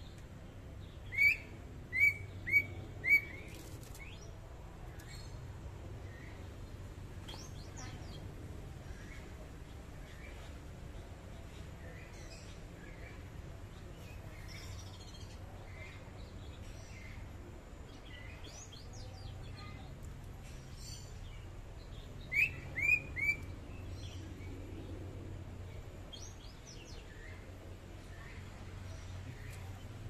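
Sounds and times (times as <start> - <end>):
low background rumble: 0.0 - 30.0
loud whistled bird notes: 22.3 - 23.5.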